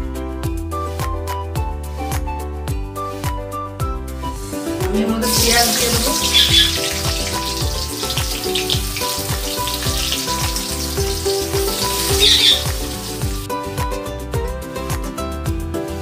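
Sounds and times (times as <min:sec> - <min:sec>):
background music with steady beat: 0:00.0 - 0:16.0
onions sizzling in hot oil: 0:04.4 - 0:13.5.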